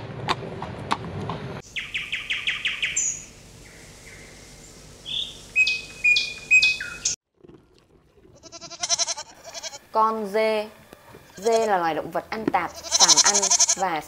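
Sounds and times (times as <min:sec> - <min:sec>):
high-pitched chirping: 0:01.7 - 0:07.2.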